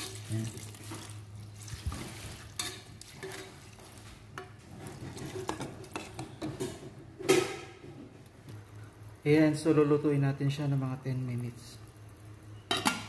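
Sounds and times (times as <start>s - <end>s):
sauce hissing and sizzling: 0.0s - 6.4s
metal ladle scraping pot: 1.8s - 3.7s, 4.4s - 6.9s.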